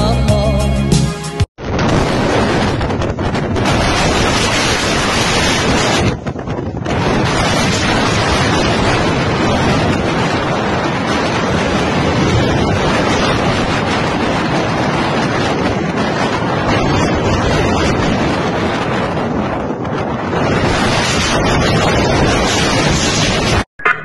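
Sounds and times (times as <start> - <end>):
wind noise on microphone: 1.6 - 23.7.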